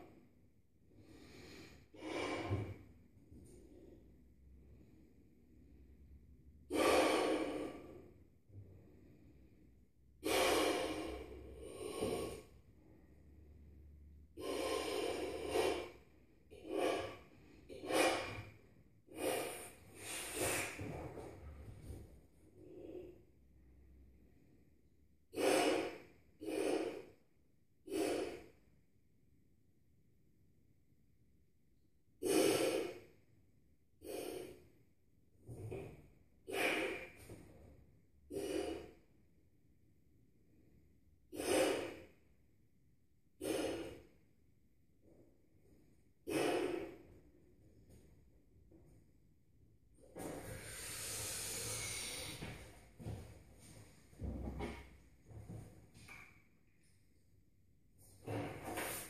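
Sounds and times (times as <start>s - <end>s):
man blowing up a balloon: 19.1s - 20.8s, 32.2s - 33.0s, 36.4s - 37.2s, 41.3s - 42.0s, 43.4s - 44.0s, 46.2s - 47.0s, 50.2s - 52.6s
man blowing into balloon: 50.4s - 52.5s.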